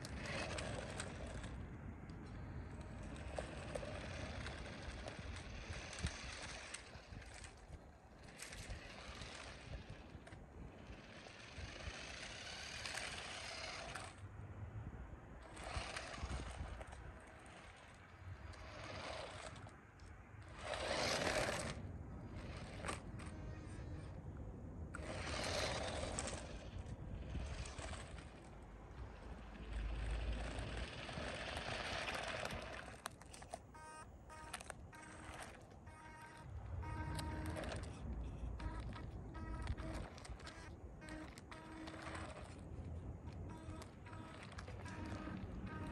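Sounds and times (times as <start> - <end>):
remote-control car motor whirring: 0.0 - 14.3, 15.4 - 45.9
tyre noise on asphalt: 0.0 - 45.9
short pitched tones: 33.7 - 42.4.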